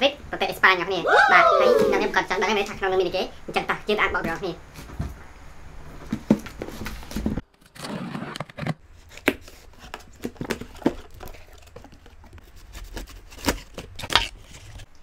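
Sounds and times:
tape and cardboard scraping: 6.4s - 14.9s.

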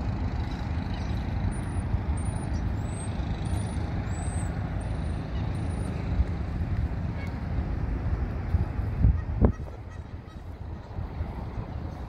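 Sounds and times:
low outdoor rumble: 0.0s - 12.0s.

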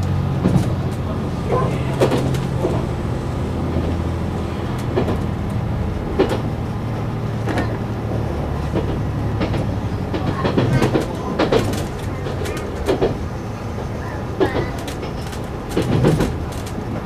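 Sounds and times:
diesel engine drone: 0.0s - 17.0s
train wheels clacking over rail joints: 0.0s - 17.0s.

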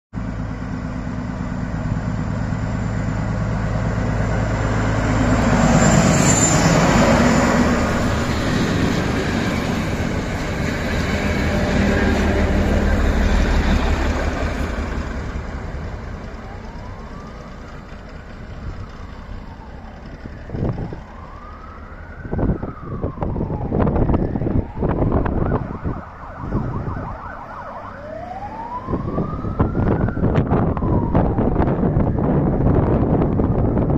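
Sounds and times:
diesel train engine drone: 0.1s - 33.9s
train wheels squealing: 5.5s - 14.4s.

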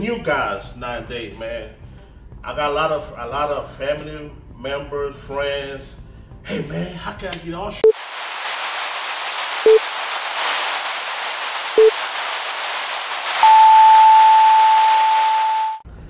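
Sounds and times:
static hiss: 7.8s - 15.8s
long high beep: 13.4s - 15.8s.

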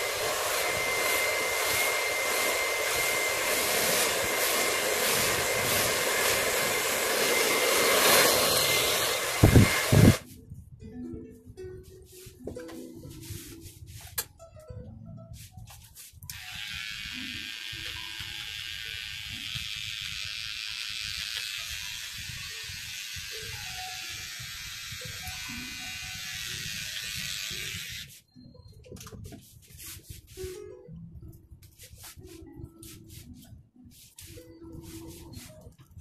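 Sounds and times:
electric hair clipper buzzing: 0.0s - 10.2s, 16.3s - 28.1s
faint soft background music: 10.2s - 36.0s.

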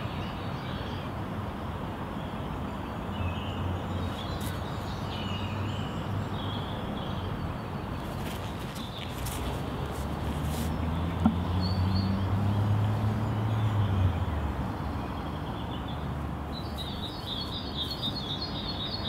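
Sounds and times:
outdoor background rumble: 8.0s - 19.0s
bird chirps: 15.1s - 19.0s.

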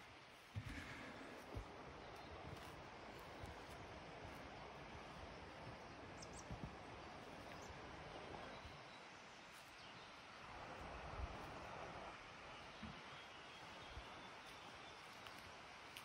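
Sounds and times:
soft footsteps on path: 0.0s - 16.0s
steady woodland hiss: 0.0s - 16.0s.

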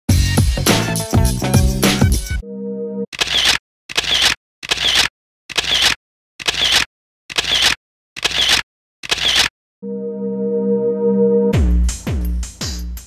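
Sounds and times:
camera shutter clicks: 3.2s - 9.5s.

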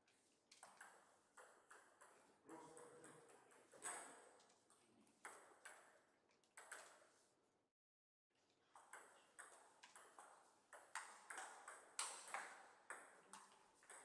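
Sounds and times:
ping pong ball bouncing on table: 0.6s - 4.3s, 5.2s - 6.0s, 8.7s - 14.0s
ping pong ball hitting rackets: 8.8s - 14.0s.

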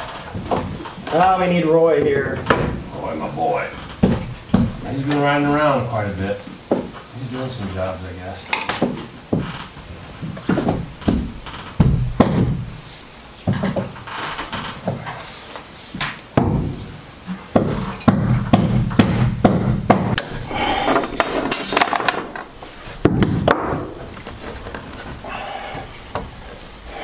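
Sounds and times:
knocks and taps of hand work: 4.0s - 5.2s, 6.7s - 7.0s, 8.6s - 9.5s, 10.5s - 12.6s, 16.0s - 16.8s, 17.5s - 20.2s
scraping and rustling: 20.3s - 27.0s.

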